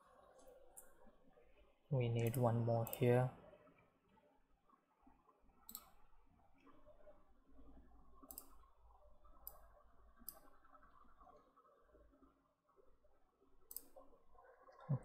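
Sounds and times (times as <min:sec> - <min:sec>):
computer mouse clicks: 0:02.2 - 0:03.1, 0:05.6 - 0:06.0, 0:08.2 - 0:08.6, 0:09.4 - 0:10.6, 0:13.7 - 0:14.0.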